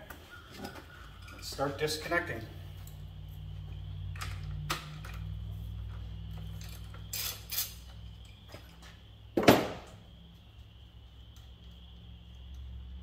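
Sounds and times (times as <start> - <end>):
metal tools clinking: 0.0 - 3.1, 6.4 - 8.9.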